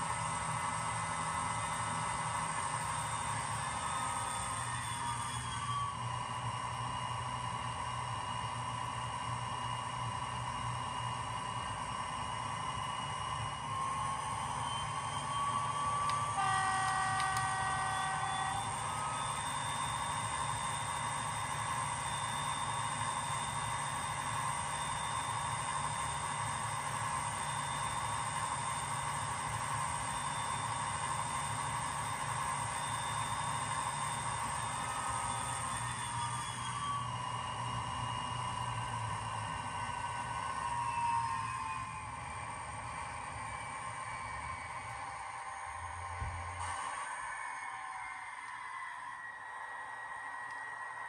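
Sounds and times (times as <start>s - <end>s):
diesel engine sound from small speaker: 0.0s - 51.0s
locomotive horn: 16.1s - 19.1s.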